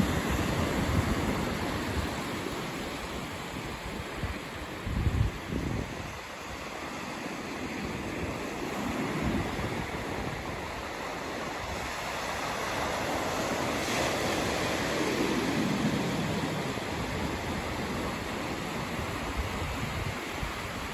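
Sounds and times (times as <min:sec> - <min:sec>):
small waves breaking on beach: 0:00.0 - 0:20.9.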